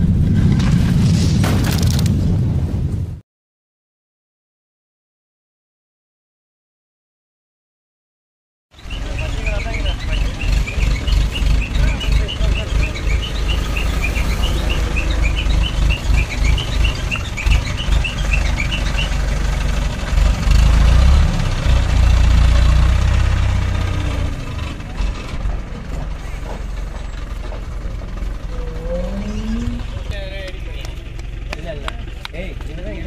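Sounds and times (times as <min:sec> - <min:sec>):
crane diesel engine running: 0:08.8 - 0:33.0.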